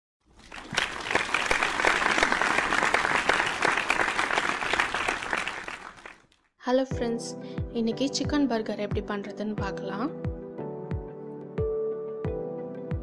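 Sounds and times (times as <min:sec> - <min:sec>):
crowd applause: 0:00.4 - 0:06.3.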